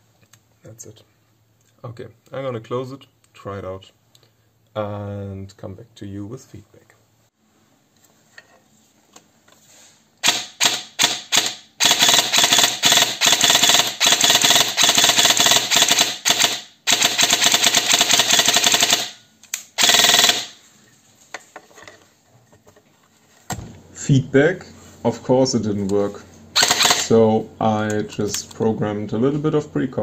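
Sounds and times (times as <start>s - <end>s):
airsoft gun firing: 10.2s - 20.6s, 26.6s - 27.1s.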